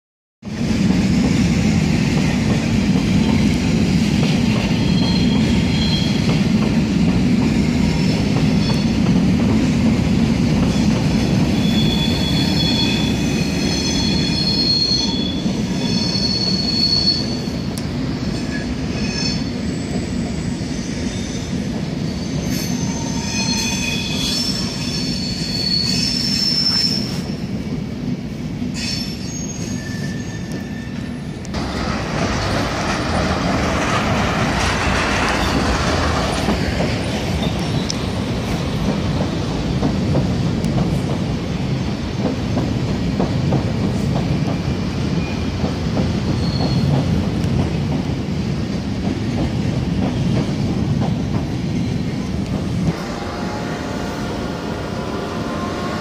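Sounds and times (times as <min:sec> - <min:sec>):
train rumbling: 0:00.4 - 0:56.0
train wheels squealing: 0:04.3 - 0:06.4, 0:07.9 - 0:09.1, 0:10.7 - 0:27.5, 0:28.7 - 0:31.5, 0:34.6 - 0:39.1, 0:43.9 - 0:47.4.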